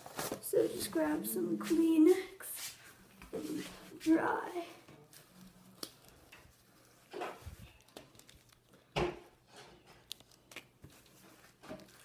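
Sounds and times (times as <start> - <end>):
handling rustles and knocks: 0.0 - 0.5, 4.8 - 12.0.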